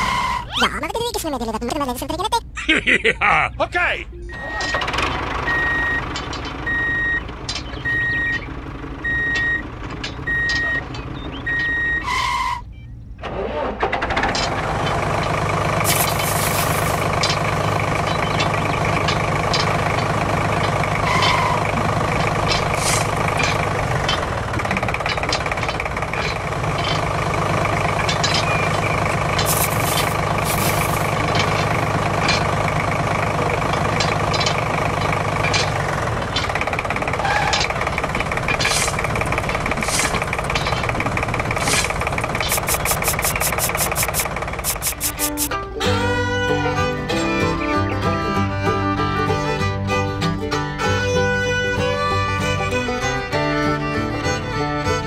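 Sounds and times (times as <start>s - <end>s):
vehicle backup alarm beeping: 5.4s - 13.0s
steady engine drone: 14.8s - 55.0s.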